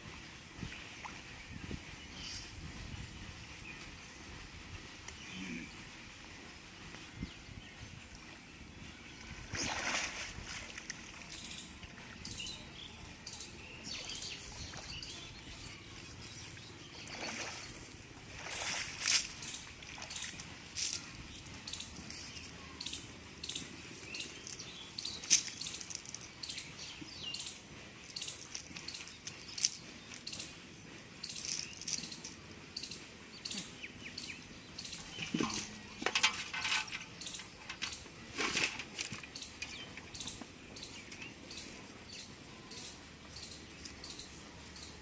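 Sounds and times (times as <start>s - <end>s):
small bird chirping: 31.2s - 35.4s, 39.3s - 45.0s.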